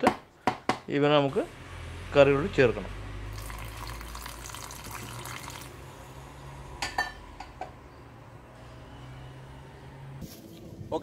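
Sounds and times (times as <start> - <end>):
water splashing into a jar: 3.3 - 5.7.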